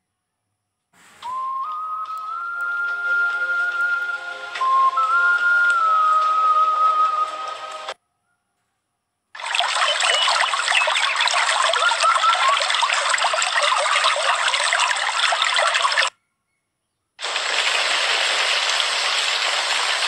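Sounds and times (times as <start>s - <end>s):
whistle-like musical note: 1.0s - 8.0s
water rushing over rocks: 9.4s - 16.1s.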